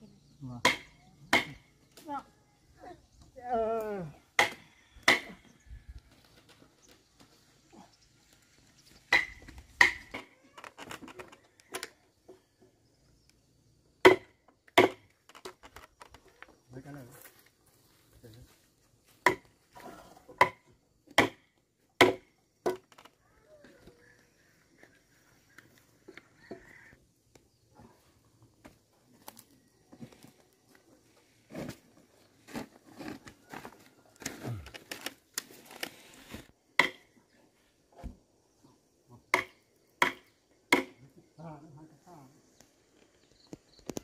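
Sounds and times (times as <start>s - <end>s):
wood chopping strikes: 0.6s - 1.6s, 4.4s - 5.4s, 9.1s - 10.2s, 14.0s - 15.1s, 19.2s - 19.5s, 20.3s - 22.9s, 36.8s - 37.1s, 39.3s - 41.0s.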